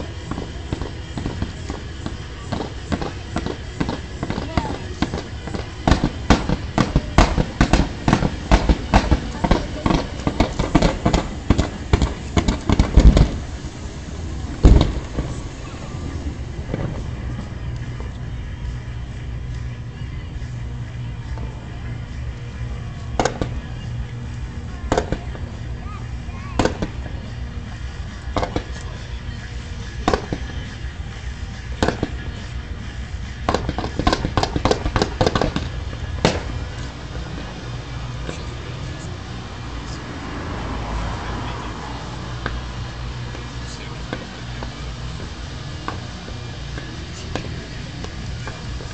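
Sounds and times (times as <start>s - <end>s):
loud firework boom: 0.0s - 17.6s
fireworks cracking and banging: 0.0s - 48.9s
low background rumble: 0.0s - 48.9s.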